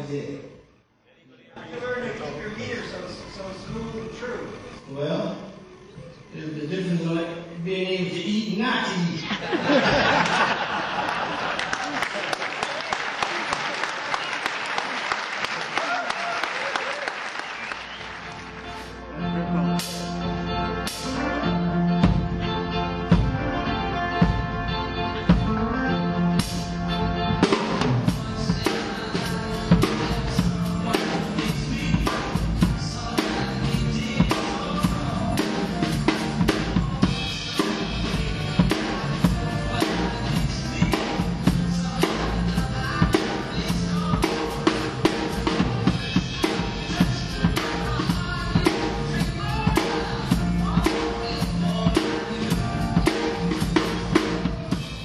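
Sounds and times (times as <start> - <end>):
recorded accompanying music: 1.8 - 55.0
drum kit groove: 19.7 - 55.0.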